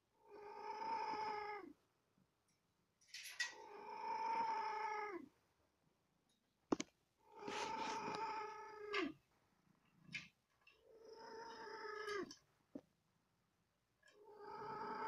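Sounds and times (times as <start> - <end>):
cat mewing: 7.4 - 9.2, 11.0 - 12.4.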